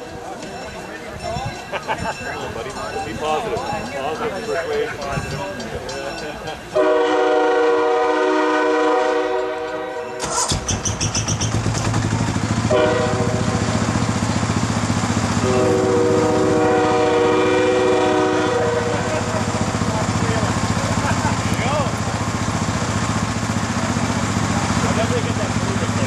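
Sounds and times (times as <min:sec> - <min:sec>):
diesel engines and wheels rumbling: 0:00.0 - 0:26.0
train air horn chord: 0:06.8 - 0:10.4, 0:12.6 - 0:13.9, 0:15.4 - 0:19.3.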